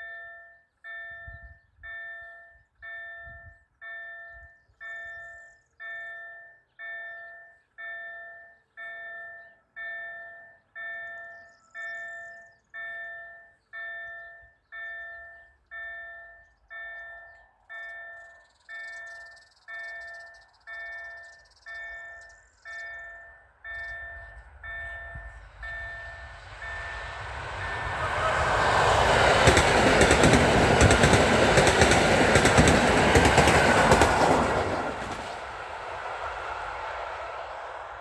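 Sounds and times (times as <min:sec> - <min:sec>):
train wheels rushing: 0:24.8 - 0:38.0.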